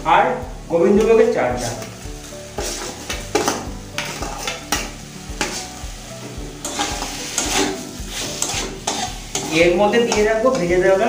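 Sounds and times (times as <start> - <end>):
food sizzling in a pan: 0.0 - 11.0
metal spatula scraping pan: 2.6 - 5.8, 6.6 - 10.6.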